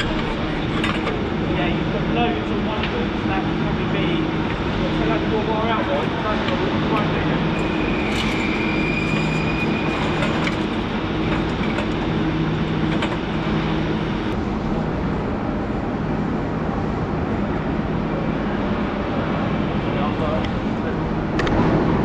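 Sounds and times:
thin high whine: 0.0 - 16.8
machinery rumble and hum: 0.0 - 22.0.

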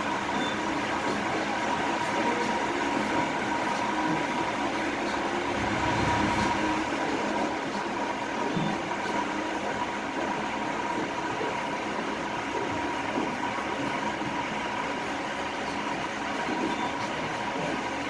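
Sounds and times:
thin high hum: 0.0 - 13.9
boat engine drone: 0.0 - 18.0.

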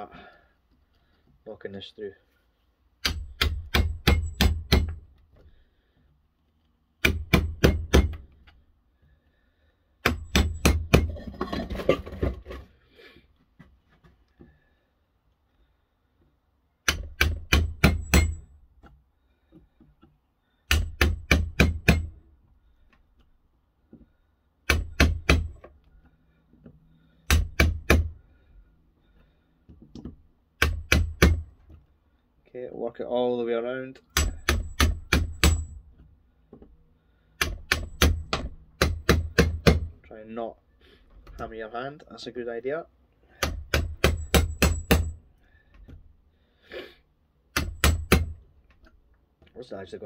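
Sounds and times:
hammer striking screwdriver: 16.8 - 18.5.

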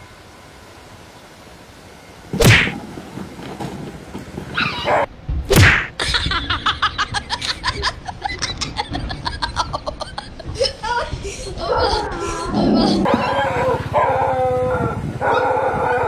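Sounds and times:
dog yelping: 4.6 - 5.1, 11.7 - 16.0
people laughing: 6.0 - 13.6.

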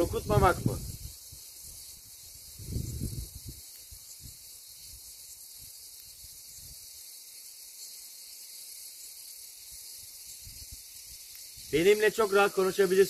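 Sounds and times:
wind buffeting microphone: 0.0 - 1.2, 2.4 - 3.6
high-pitched hiss: 0.0 - 13.0.

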